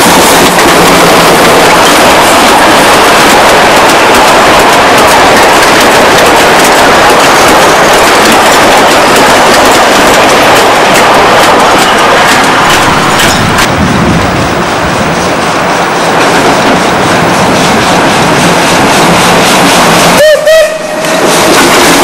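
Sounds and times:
steam train rumbling: 0.0 - 22.0
wheels clicking over rail joints: 0.1 - 13.8, 21.0 - 22.0.

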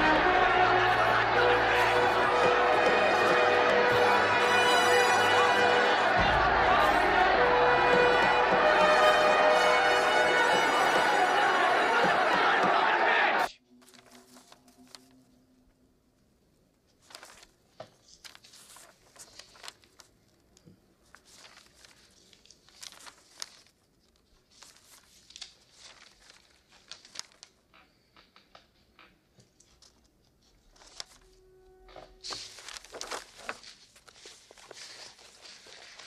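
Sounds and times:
newspaper rustling: 13.8 - 15.2, 16.9 - 28.1, 29.6 - 31.3, 32.2 - 36.0.

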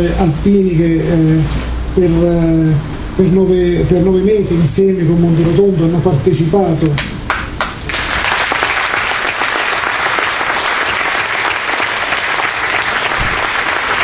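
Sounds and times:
audience clapping: 7.0 - 14.0.

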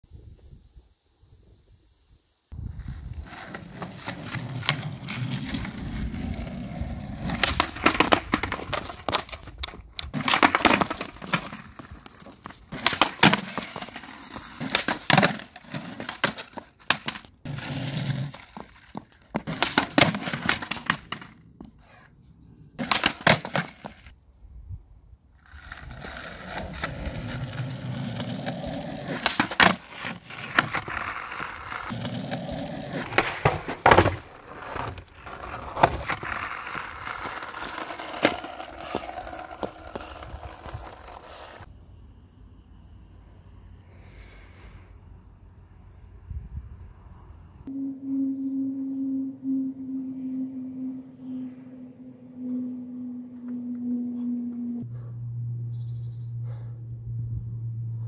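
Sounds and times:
skateboard rolling on asphalt: 2.5 - 22.0, 22.8 - 24.1, 25.4 - 41.7
skateboard deck clacking on pavement: 18.4 - 21.3, 22.8 - 24.0, 35.7 - 41.6.

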